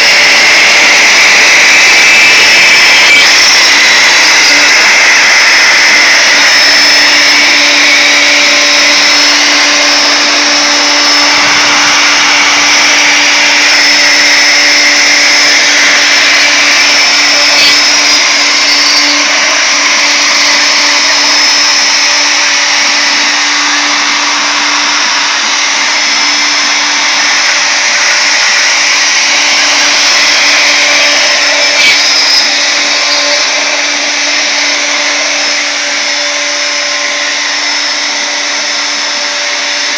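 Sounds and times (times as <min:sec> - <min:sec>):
router whining while cutting wood: 0:00.0 - 0:39.9.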